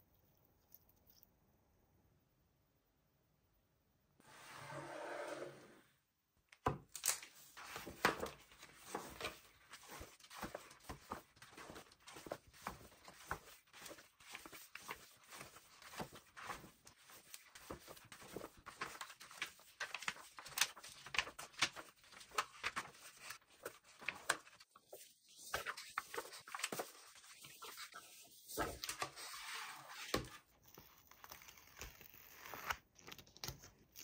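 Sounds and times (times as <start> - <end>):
paper rustling and tapping: 6.6 - 29.2
book pages turning: 6.6 - 34.0.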